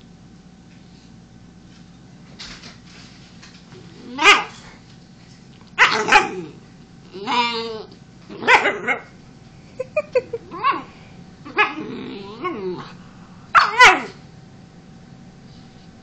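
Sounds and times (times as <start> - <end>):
dog barking and yipping: 4.1 - 4.6, 5.8 - 6.4, 8.4 - 9.1, 11.5 - 11.9, 13.5 - 14.2.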